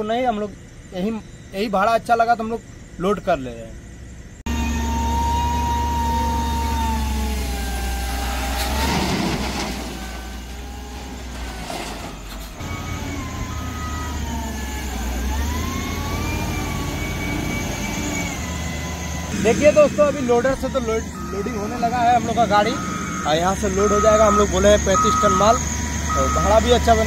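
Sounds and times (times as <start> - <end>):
loader diesel engine under load: 3.8 - 27.0
coal sliding from bucket: 7.8 - 12.6.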